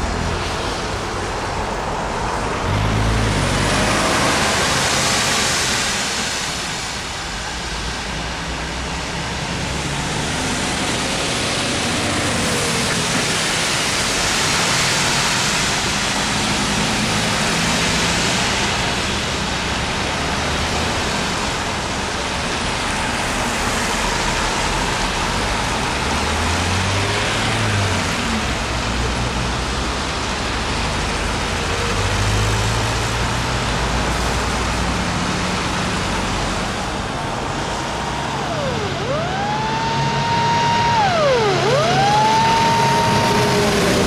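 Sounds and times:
heavy truck engine passing: 0.0 - 44.0
highway traffic rushing: 0.0 - 44.0
fire engine siren: 8.6 - 19.0, 36.0 - 44.0.

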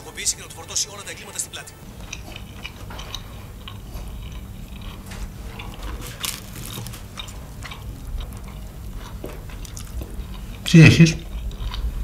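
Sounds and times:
low steady hum: 0.0 - 12.0
chewing: 1.8 - 12.0.

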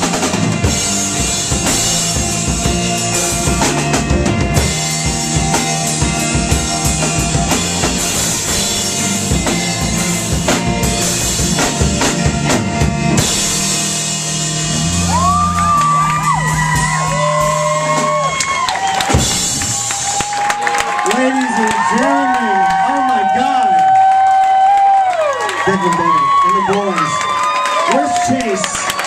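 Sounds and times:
drums hitting densely: 0.0 - 20.8
live rock band playing: 0.0 - 29.0.

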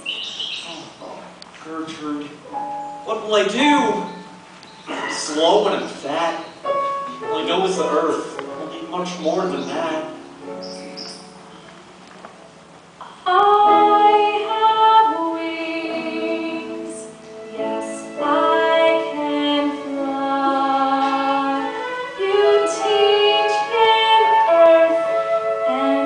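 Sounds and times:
voices singing in harmony: 13.2 - 26.0.

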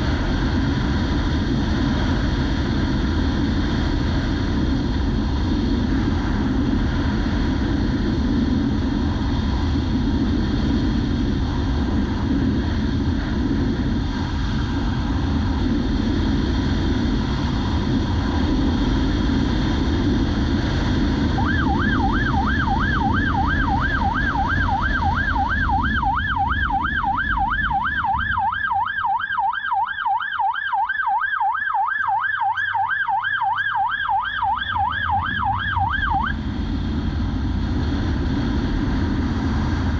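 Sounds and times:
motorcycle engine at speed: 0.0 - 28.8
wind rush: 0.0 - 29.8, 33.1 - 39.9
warbling police siren: 21.1 - 36.5.

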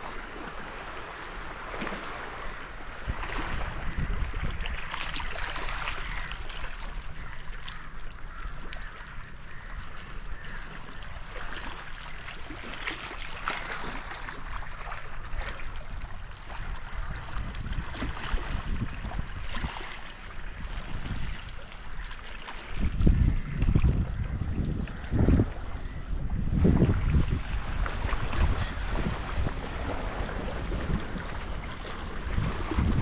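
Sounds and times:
water lapping among rocks: 0.0 - 25.7, 26.5 - 33.0
wind rumble on microphone: 1.8 - 10.7, 15.2 - 22.0, 22.6 - 33.0.

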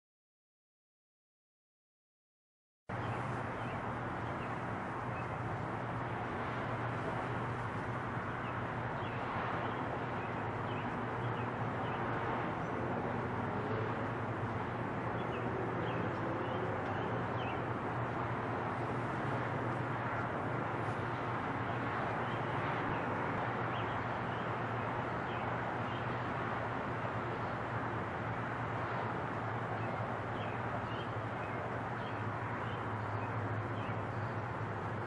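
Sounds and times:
small birds chirping: 6.4 - 12.8, 15.1 - 26.2, 29.7 - 35.0.

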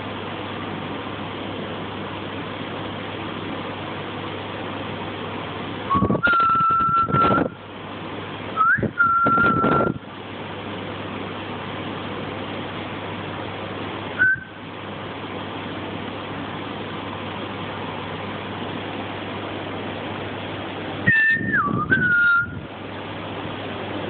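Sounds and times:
person whistling high notes: 5.9 - 7.5, 21.1 - 22.6.

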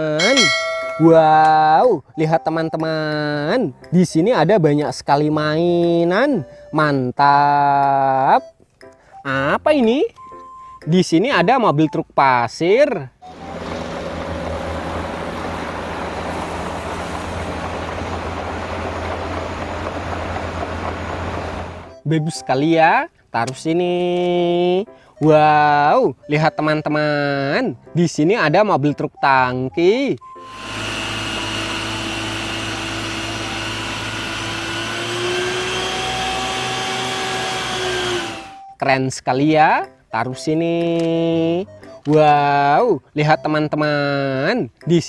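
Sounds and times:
diesel engine droning: 13.2 - 22.0, 30.2 - 38.7
water pump mechanical whine: 13.2 - 22.0, 30.2 - 38.7.

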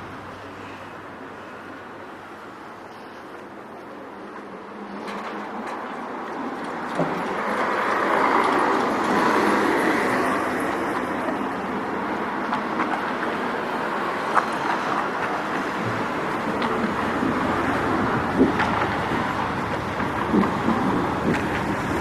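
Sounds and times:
vehicle passing rumble: 0.0 - 22.0.

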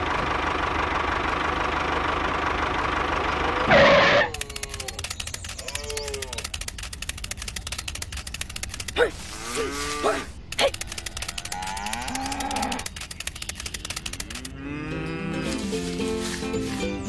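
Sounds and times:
fast even clicking: 3.8 - 9.6, 10.3 - 14.6
cow mooing: 9.3 - 10.4, 11.4 - 12.9, 14.3 - 15.7.

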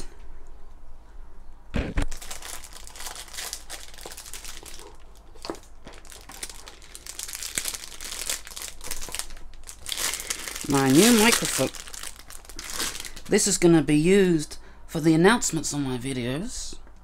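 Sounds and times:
plastic bag crinkling: 2.0 - 13.6.

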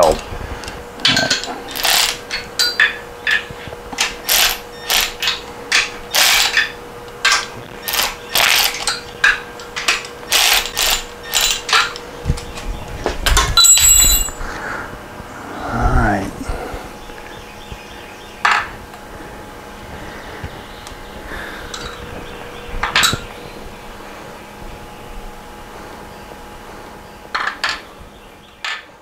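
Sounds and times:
ratchet wrench clicking: 4.2 - 5.4, 10.3 - 11.6.

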